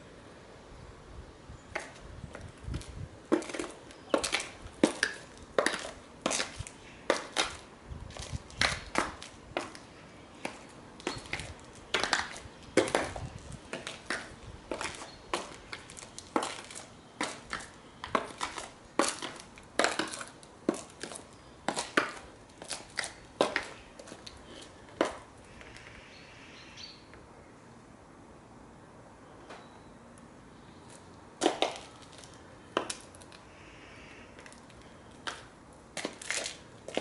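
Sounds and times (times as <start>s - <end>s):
high heels clicking on stone: 1.7s - 25.3s, 31.4s - 33.3s, 35.2s - 37.0s.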